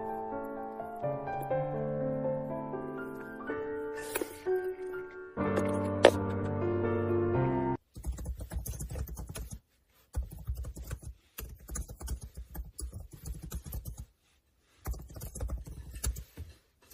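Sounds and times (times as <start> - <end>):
music: 0.0 - 7.8.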